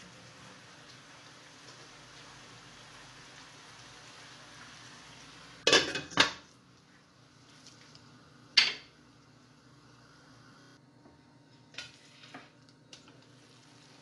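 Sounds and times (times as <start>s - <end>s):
simmering pot hiss: 0.0s - 10.8s, 11.7s - 14.0s.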